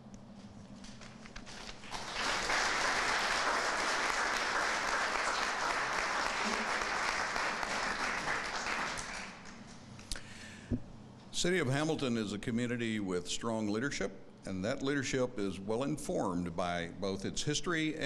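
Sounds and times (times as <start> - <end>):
audience applauding: 1.5 - 9.6.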